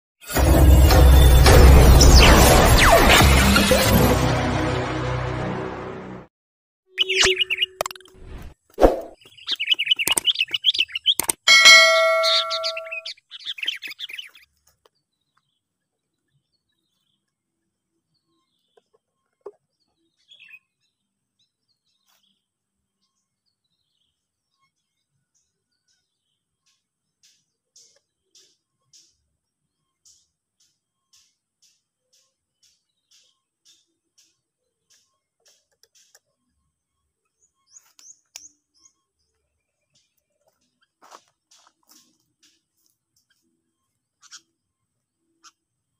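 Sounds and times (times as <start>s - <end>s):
birds chirping: 6.9s - 8.4s, 9.0s - 17.4s, 18.0s - 45.8s
sharp click: 11.1s - 13.0s
sharp falling bird notes: 11.5s - 13.1s.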